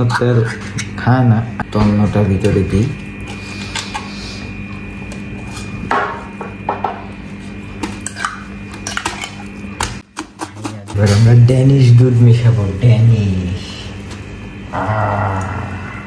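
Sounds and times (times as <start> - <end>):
spoon scraping a tin: 0.0 - 1.0
steady low hum: 0.0 - 16.0.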